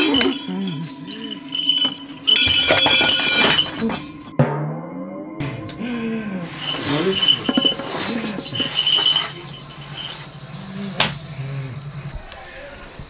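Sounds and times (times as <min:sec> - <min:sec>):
bells jingling: 0:00.0 - 0:04.3, 0:05.4 - 0:12.7
man's wordless vocal cries: 0:05.6 - 0:09.1.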